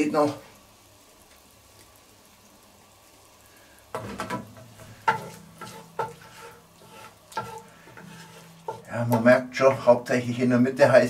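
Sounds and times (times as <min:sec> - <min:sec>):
oil sizzling in a pot: 0:00.0 - 0:11.0
wooden spoon scraping a pot: 0:04.0 - 0:09.9.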